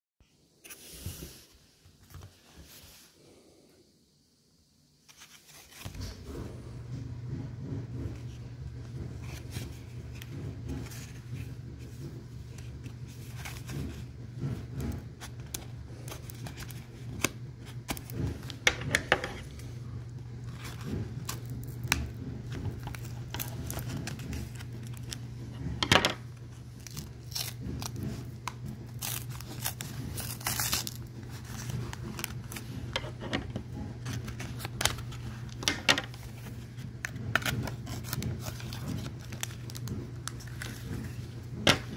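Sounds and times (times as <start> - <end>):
steady low hum: 5.4 - 41.9
packaging crinkling and tearing: 14.7 - 41.9.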